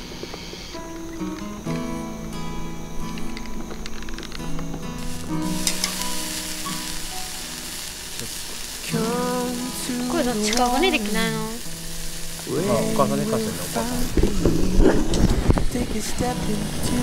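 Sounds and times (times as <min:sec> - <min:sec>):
background music: 0:00.0 - 0:15.2
meat sizzling on grill: 0:00.0 - 0:17.0
person singing melody: 0:08.2 - 0:11.8, 0:12.4 - 0:17.0.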